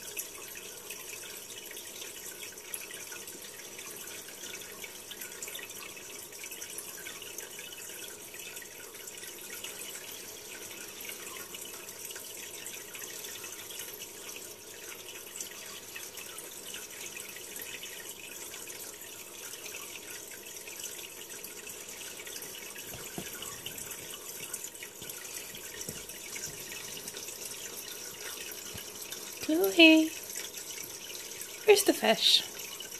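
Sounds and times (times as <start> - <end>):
aquarium water bubbling: 0.0 - 32.9.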